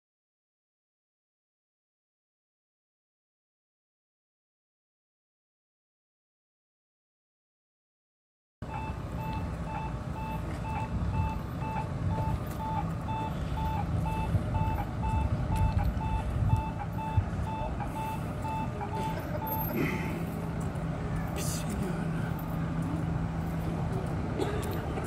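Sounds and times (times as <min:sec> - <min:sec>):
crossing signal beeps: 0:08.6 - 0:20.4
street traffic rumble: 0:08.6 - 0:25.0
tram rolling: 0:08.6 - 0:25.0.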